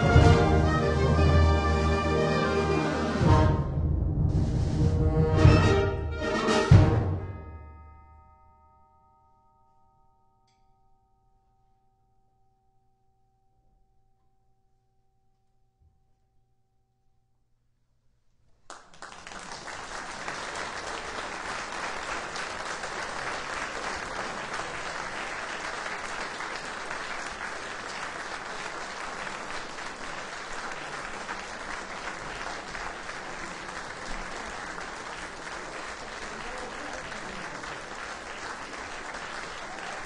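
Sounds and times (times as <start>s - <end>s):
audience applause: 0.0s - 3.2s, 18.7s - 40.0s
faint ringing tone: 7.5s - 17.8s.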